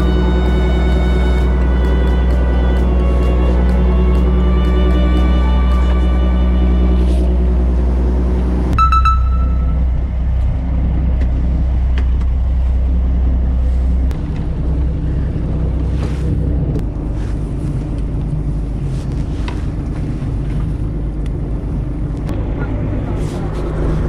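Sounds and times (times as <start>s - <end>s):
boat engine drone: 0.0s - 24.0s
wind: 0.0s - 24.0s
bell-like chime: 8.8s - 9.8s.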